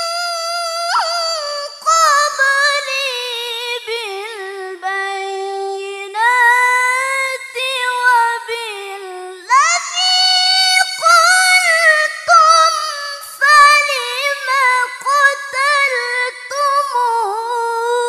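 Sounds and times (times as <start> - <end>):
woman reciting melodically: 0.0 - 18.0.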